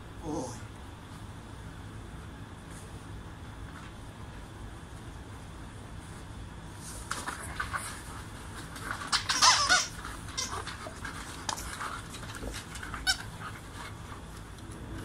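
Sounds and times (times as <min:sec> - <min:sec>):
dog yipping: 0:09.1 - 0:10.7.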